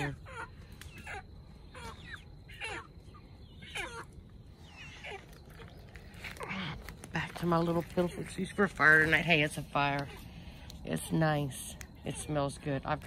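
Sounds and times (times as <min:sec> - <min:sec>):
chickens calling: 0:00.0 - 0:13.0.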